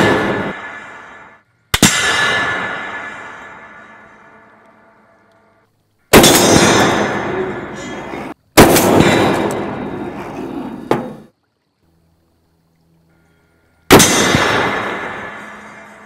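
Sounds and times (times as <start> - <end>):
heavy rifle shots: 0.0 - 4.5, 6.1 - 10.2, 13.9 - 16.0
sharp crack: 0.0 - 5.5, 6.1 - 10.3, 13.9 - 16.0.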